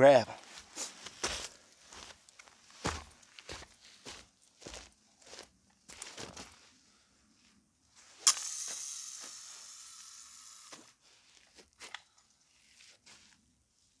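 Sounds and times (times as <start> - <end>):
light reel clicks: 8.2 - 10.7
fishing line whirring off reel: 8.2 - 10.9.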